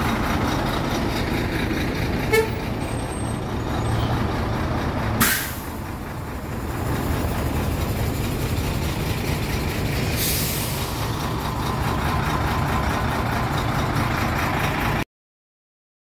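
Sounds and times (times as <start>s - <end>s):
truck diesel engine idling: 0.0s - 15.0s
air brake hiss: 5.2s - 5.8s, 10.1s - 10.9s.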